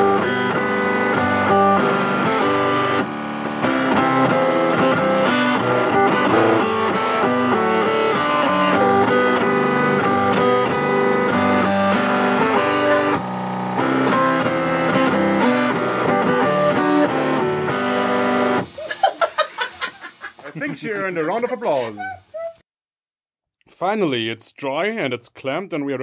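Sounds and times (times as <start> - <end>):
stepper motors playing buzzy melody: 0.0 - 19.1.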